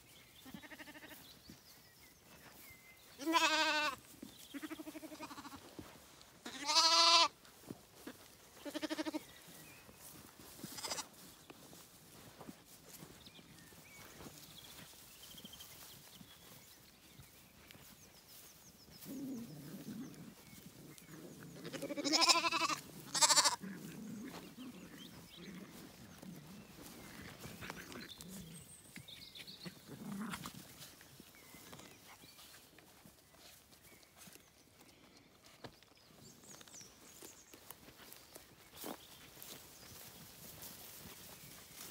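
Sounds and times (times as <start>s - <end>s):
lambs bleating: 0.4s - 1.2s, 3.2s - 5.7s, 6.4s - 7.4s, 8.0s - 9.2s, 10.7s - 11.1s, 21.6s - 24.6s.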